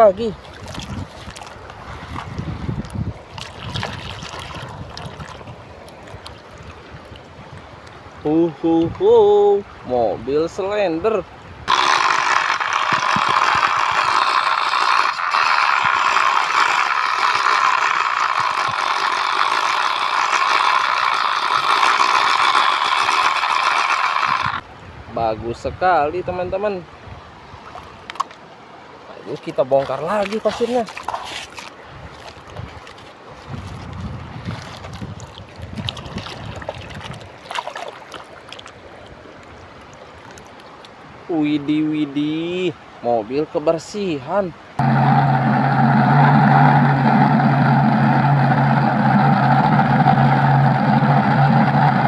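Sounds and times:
flowing river water: 0.0s - 25.1s, 25.8s - 52.0s
wind buffeting microphone: 0.4s - 7.8s, 31.8s - 37.4s
hands scraping wet sand: 11.7s - 24.6s, 29.8s - 35.0s
high-pitched squealing whine: 11.7s - 24.6s, 44.8s - 52.0s.

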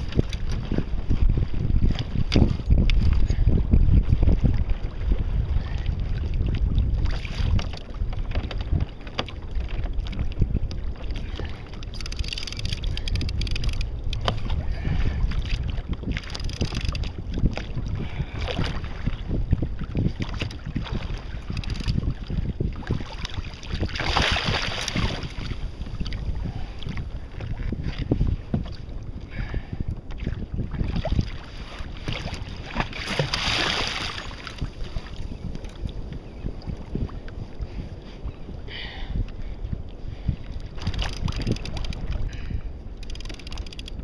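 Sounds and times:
waves slapping against hull: 0.0s - 44.0s
wind buffeting microphone: 0.0s - 44.0s.

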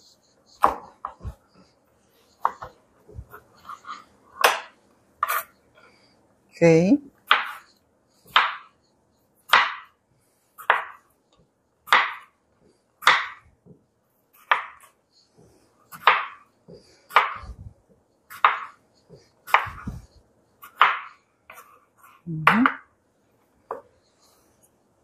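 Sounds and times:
knife chopping on wooden board: 0.6s - 1.4s, 7.2s - 7.7s, 8.3s - 8.7s, 9.5s - 10.0s, 10.6s - 11.0s, 11.9s - 12.4s, 13.0s - 13.4s, 14.4s - 14.9s, 15.9s - 16.5s, 17.1s - 17.6s, 18.3s - 18.8s, 19.4s - 20.0s, 20.6s - 21.8s.

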